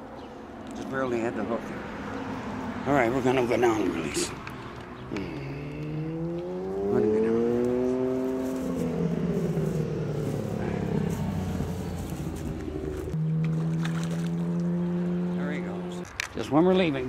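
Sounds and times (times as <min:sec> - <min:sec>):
motorboat engine running: 0:07.6 - 0:16.0.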